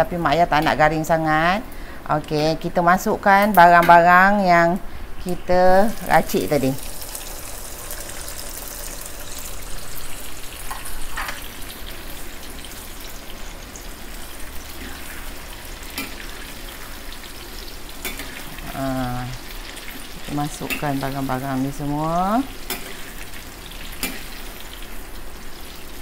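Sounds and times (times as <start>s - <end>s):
hot oil sizzling in a wok: 5.7s - 26.0s.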